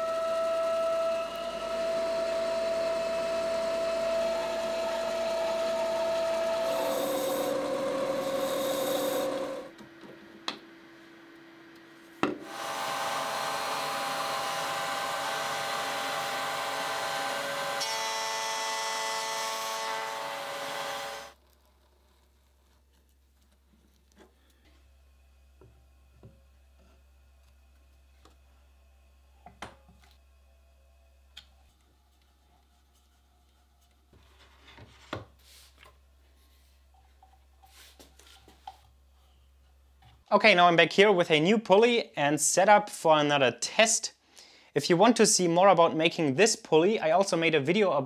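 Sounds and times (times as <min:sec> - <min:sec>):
power tool machining plastic: 0:00.0 - 0:09.7, 0:12.4 - 0:21.4.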